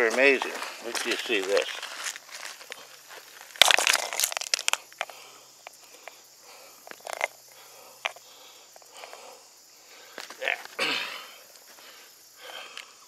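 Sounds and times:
hand rummaging through gravel: 0.3 - 2.7, 3.3 - 4.8.

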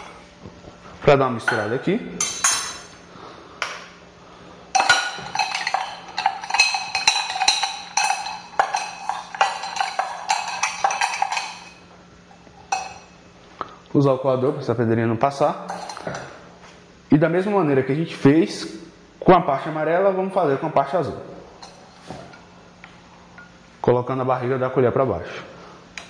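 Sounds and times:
spoon clinking ice in metal tin: 4.8 - 11.8, 12.7 - 13.1, 15.7 - 16.2.

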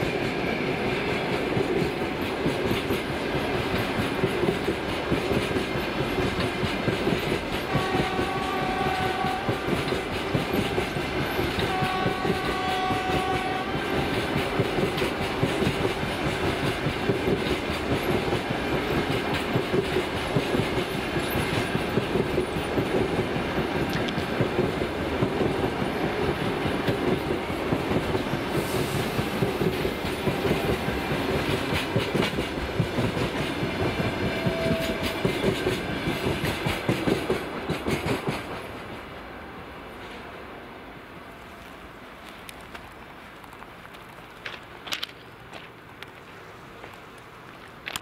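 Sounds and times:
train wheels clattering: 0.0 - 39.0
train horn: 7.7 - 10.2, 11.2 - 15.4, 33.6 - 36.2.

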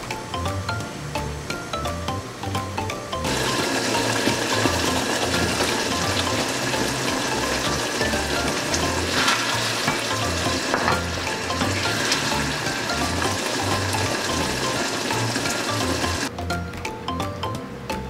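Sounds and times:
sauce sizzling and bubbling: 3.3 - 16.3.

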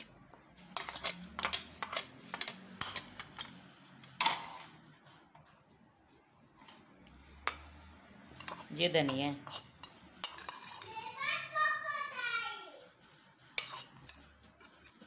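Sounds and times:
metal spoon scraping pot and plate: 0.0 - 5.6, 6.6 - 11.2, 13.4 - 15.0.

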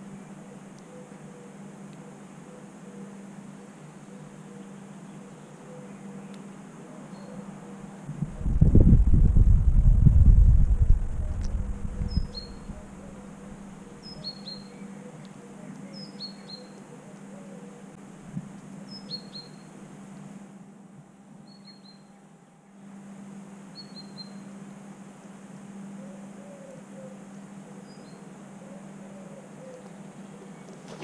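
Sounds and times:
songbird chirping: 0.0 - 8.1, 11.2 - 18.0, 18.8 - 19.8, 21.4 - 22.3, 23.7 - 24.5, 25.9 - 31.0.

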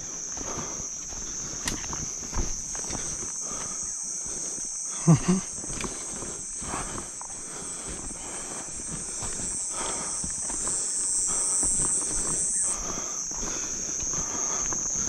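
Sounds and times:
footsteps through brush: 0.0 - 15.0
night insects chirping: 0.0 - 15.0
low grunts: 4.9 - 5.6.

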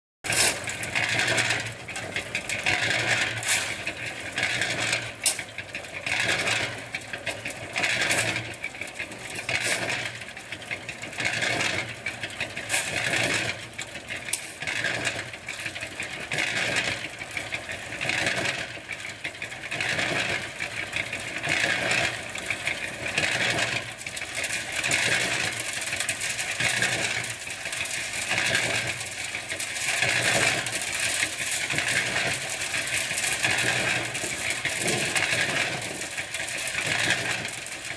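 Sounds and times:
cement mixer turning gravel: 0.2 - 37.9
stones clinking in steel drum: 22.4 - 37.9.

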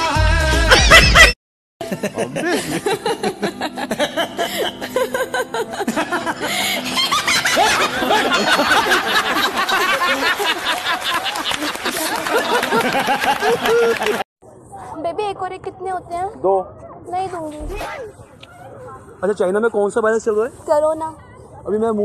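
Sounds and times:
music with singing: 0.0 - 1.1
woman laughing: 0.7 - 14.2.

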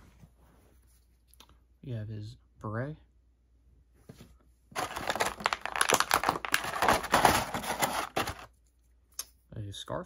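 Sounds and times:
plastic bag crinkling: 4.8 - 8.5.

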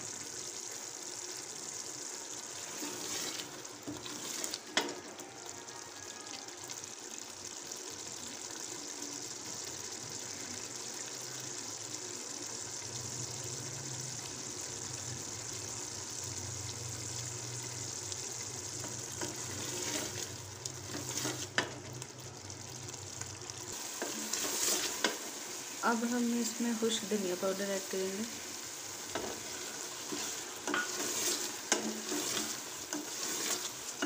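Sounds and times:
meat sizzling in oil: 0.0 - 34.0
wooden spoon stirring and knocking: 29.1 - 34.0.

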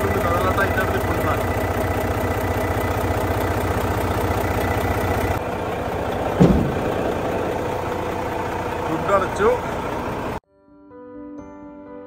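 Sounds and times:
diesel truck engine idling: 0.0 - 10.4
truck hood thump shut: 6.3 - 7.4.

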